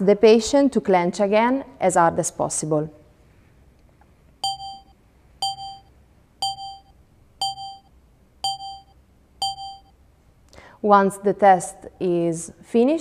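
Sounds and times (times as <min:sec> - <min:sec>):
short electronic ding: 0:04.4 - 0:09.9.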